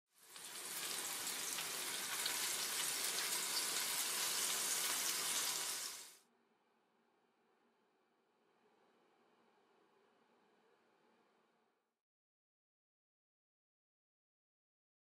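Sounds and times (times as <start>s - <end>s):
meatballs sizzling in frying pan: 0.1s - 6.2s.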